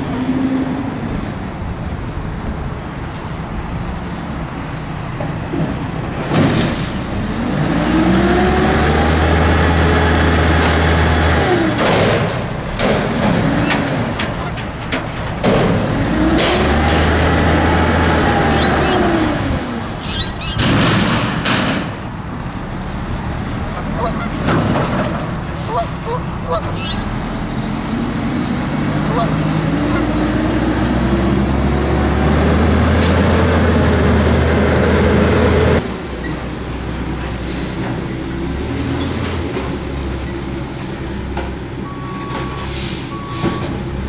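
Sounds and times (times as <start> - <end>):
garbage truck engine revving: 5.1 - 36.2
metal dumpster bangs and clangs: 5.2 - 7.2, 11.6 - 18.5, 20.5 - 22.2, 24.0 - 25.8.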